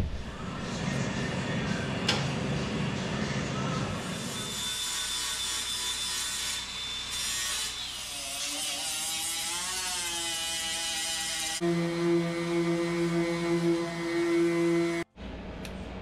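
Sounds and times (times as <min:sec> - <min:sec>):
grinder grinding metal: 0:04.0 - 0:15.0.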